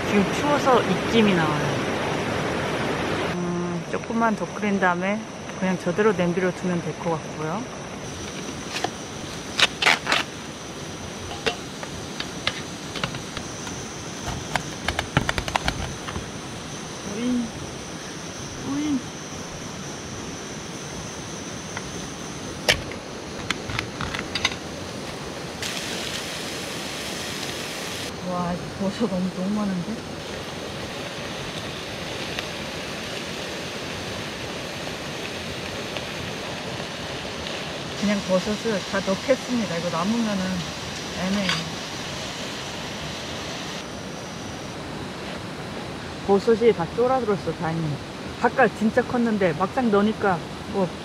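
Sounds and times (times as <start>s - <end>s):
stream water rushing: 0.0s - 3.4s, 21.4s - 51.0s.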